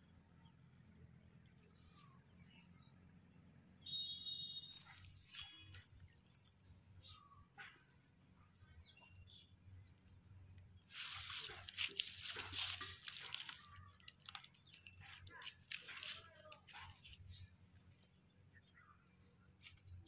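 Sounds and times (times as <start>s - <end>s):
crackling and rustling: 4.7s - 6.4s, 9.4s - 18.8s, 19.5s - 20.0s.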